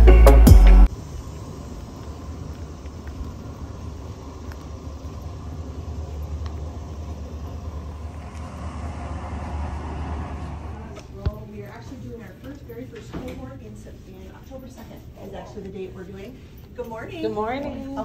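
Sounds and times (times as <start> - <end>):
background music: 0.0 - 0.9
steady low rumble: 0.0 - 16.8.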